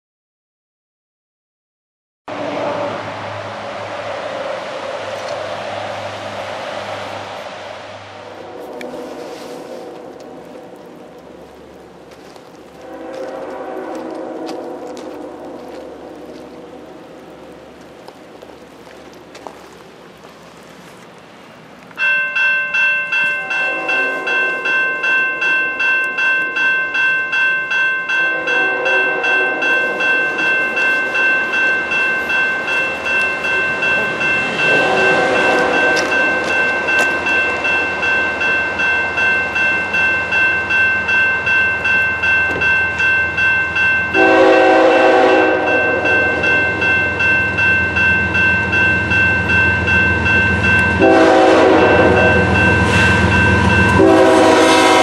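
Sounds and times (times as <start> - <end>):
train horn blasts: 2.3 - 3.9, 8.2 - 11.0, 12.7 - 17.3, 23.3 - 25.1, 28.1 - 31.4, 33.5 - 37.6, 44.1 - 46.9, 50.9 - 55.0
level-crossing bell dinging: 22.0 - 55.0.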